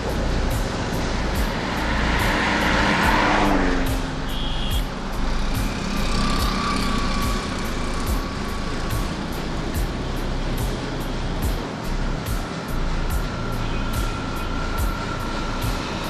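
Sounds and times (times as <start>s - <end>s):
minibus passing close: 0.0s - 16.0s
motorcycles passing: 0.0s - 16.0s
short high beep: 4.0s - 4.9s.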